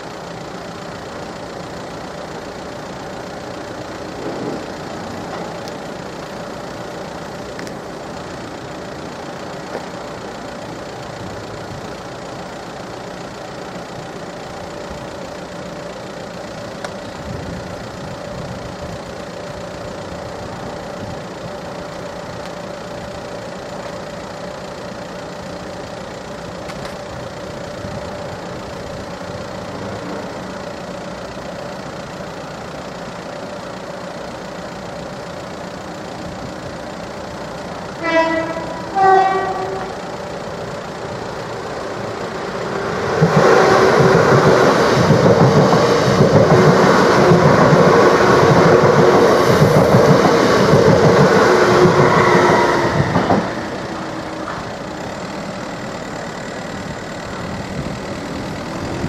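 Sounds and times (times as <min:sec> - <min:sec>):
train passing wheel and rail noise: 0:00.0 - 0:59.0
train horn notes: 0:38.0 - 0:40.1, 0:43.4 - 0:44.3, 0:51.6 - 0:53.8.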